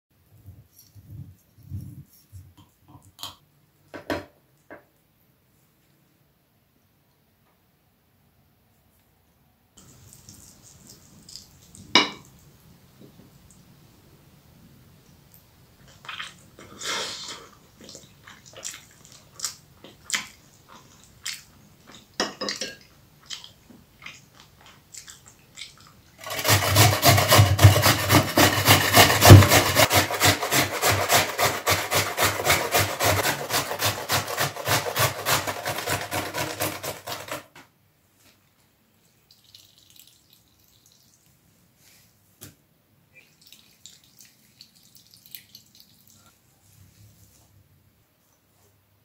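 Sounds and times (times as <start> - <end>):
potato grating on metal grater: 26.2 - 37.5.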